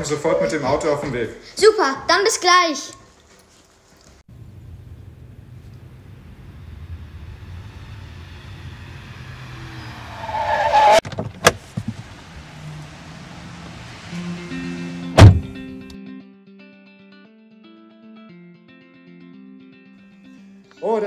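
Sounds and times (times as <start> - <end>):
tyre squeal: 9.5 - 11.0.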